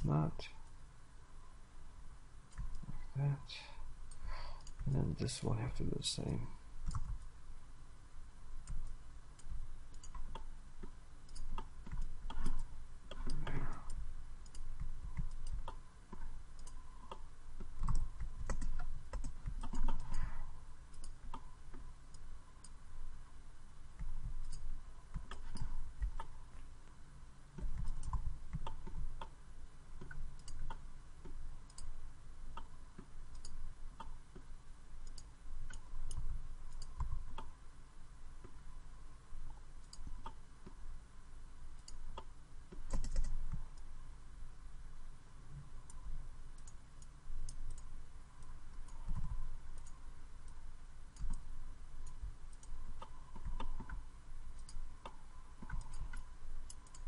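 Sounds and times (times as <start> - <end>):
computer mouse and keyboard clicks: 2.5 - 3.0, 4.1 - 5.0, 6.8 - 7.3, 8.6 - 22.8, 24.0 - 26.4, 27.6 - 29.4, 30.0 - 37.6, 39.8 - 40.8, 41.8 - 43.9, 45.8 - 50.6, 51.2 - 54.0, 54.6 - 57.0.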